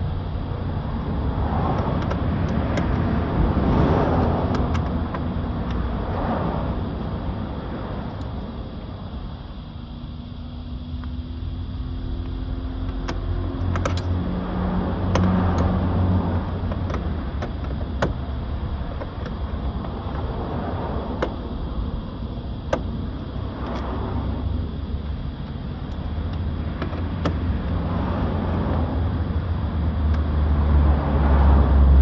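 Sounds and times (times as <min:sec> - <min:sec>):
steady low rumble: 0:00.0 - 0:32.0
hands clicking and tapping on car door: 0:01.7 - 0:03.1, 0:04.2 - 0:05.8, 0:12.8 - 0:14.1, 0:15.0 - 0:15.8, 0:16.5 - 0:18.2, 0:22.7 - 0:23.0.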